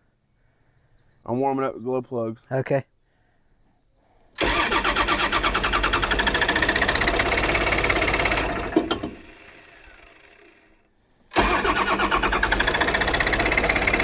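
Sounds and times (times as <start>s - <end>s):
diesel engine cranking: 4.4s - 14.0s.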